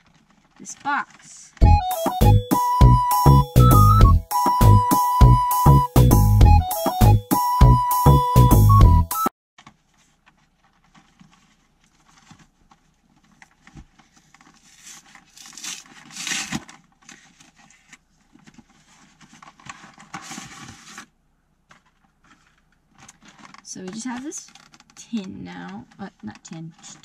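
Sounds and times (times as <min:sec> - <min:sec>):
packaging rustling and tearing: 0:00.0 - 0:01.6, 0:09.6 - 0:27.0.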